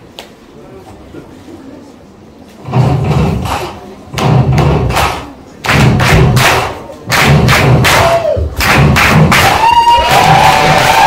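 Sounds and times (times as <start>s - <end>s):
loud rhythmic thudding: 2.6s - 9.7s.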